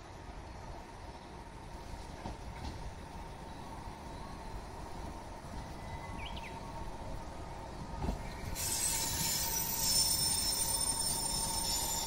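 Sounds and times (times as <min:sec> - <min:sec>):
train rumbling: 0:00.0 - 0:12.0
train wheels squealing: 0:08.0 - 0:12.0.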